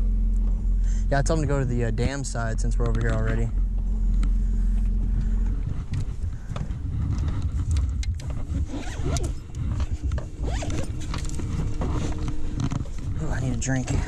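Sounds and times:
rustling and bumps: 1.4 - 14.0
zipper being pulled: 7.0 - 13.0.

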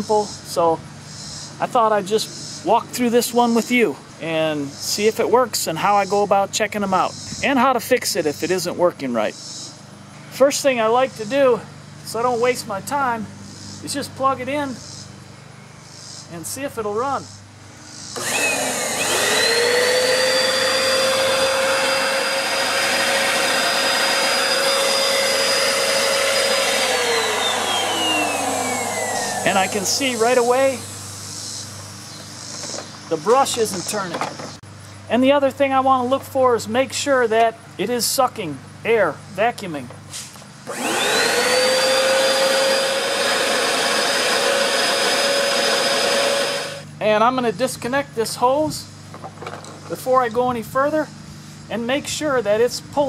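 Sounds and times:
vacuum cleaner motor whining: 18.2 - 31.1, 40.7 - 46.8
vacuum motor spinning down: 18.2 - 31.6, 40.7 - 46.8.

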